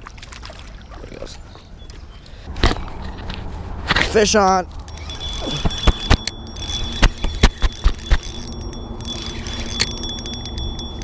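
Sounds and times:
spinning reel clicking rapidly: 0:04.9 - 0:11.0.

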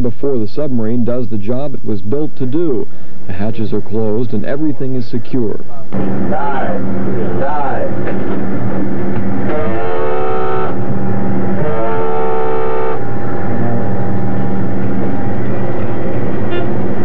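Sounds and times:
steady low hum: 0:00.0 - 0:17.0
diving alarm blasts: 0:09.0 - 0:17.0.

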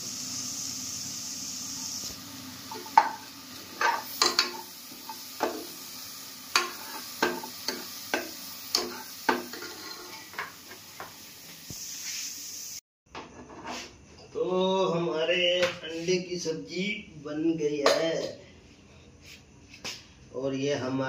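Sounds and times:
frying sizzle: 0:00.0 - 0:12.8
metal spoon scraping a pot: 0:08.7 - 0:10.4.

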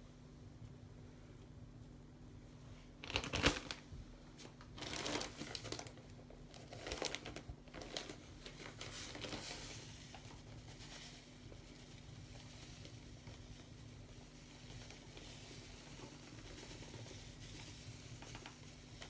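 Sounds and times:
plastic bag crinkling: 0:03.0 - 0:11.4.

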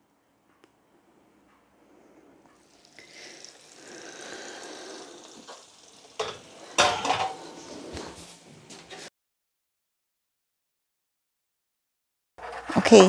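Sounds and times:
pan juices sizzling: 0:02.6 - 0:09.1
metal tray clattering: 0:06.2 - 0:07.6.

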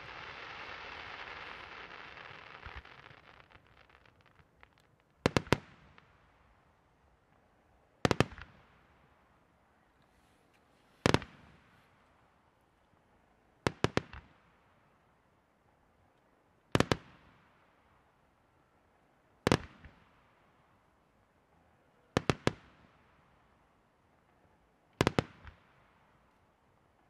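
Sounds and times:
firework shells bursting: 0:00.0 - 0:05.5.

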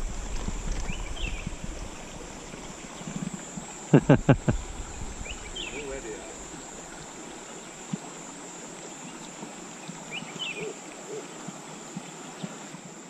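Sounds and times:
high-pitched insect whine: 0:00.0 - 0:13.0
water hiss: 0:00.0 - 0:13.0
bird chirp: 0:00.9 - 0:01.6, 0:05.2 - 0:06.0, 0:10.1 - 0:10.8.

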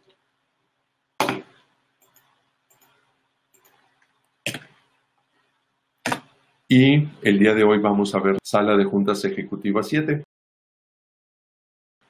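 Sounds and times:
computer mouse clicks: 0:02.0 - 0:04.9.

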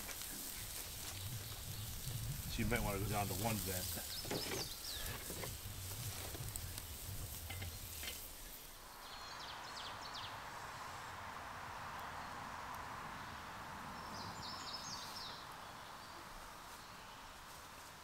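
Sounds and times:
burger patties sizzling on grill: 0:00.0 - 0:08.8
steady outdoor hiss: 0:00.0 - 0:18.0
bird chirps: 0:04.0 - 0:05.8.

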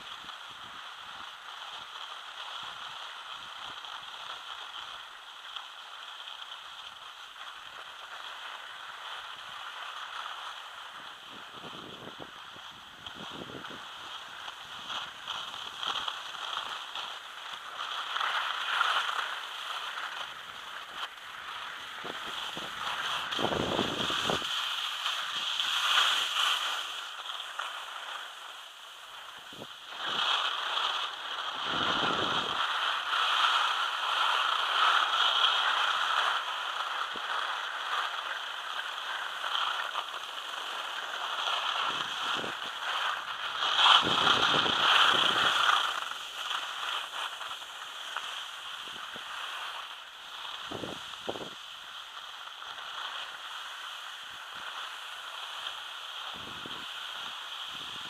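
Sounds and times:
skis scraping on snow: 0:00.0 - 0:58.0
wind buffeting microphone: 0:22.0 - 0:24.5, 0:31.6 - 0:32.6, 0:43.9 - 0:45.7, 0:50.7 - 0:51.6.

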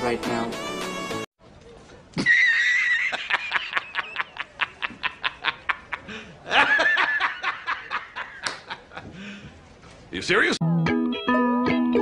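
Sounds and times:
man cackling laugh: 0:02.2 - 0:09.1.

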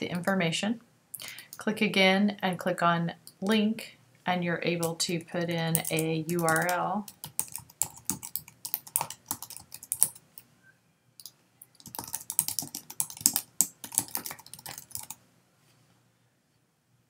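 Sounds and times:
typing on computer keyboard: 0:04.8 - 0:10.4, 0:11.2 - 0:15.2.

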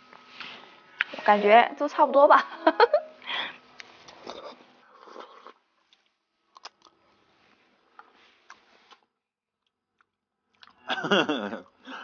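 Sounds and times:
quiet chewing: 0:03.8 - 0:07.0, 0:07.9 - 0:10.8.

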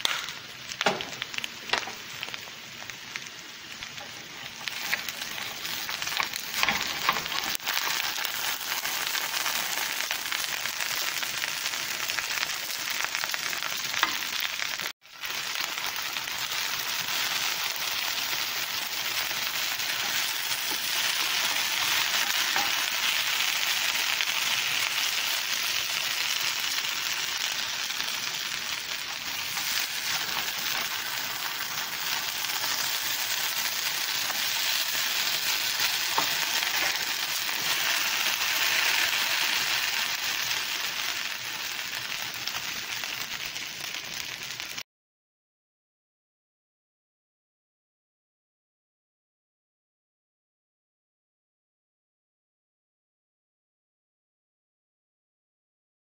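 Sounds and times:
potatoes sizzling in a pan: 0:00.0 - 0:44.8.

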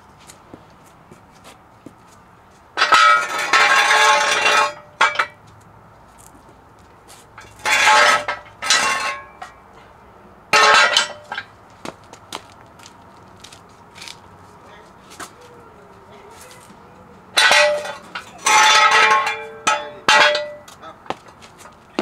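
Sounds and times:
metal jack stand scraping on concrete: 0:02.8 - 0:05.4, 0:07.1 - 0:09.6, 0:10.5 - 0:11.5, 0:17.4 - 0:20.7.

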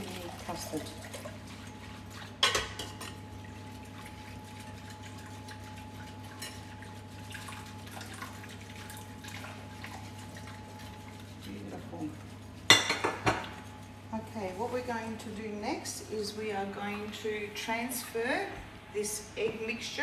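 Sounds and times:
whisk in a glass bowl: 0:00.0 - 0:13.9.

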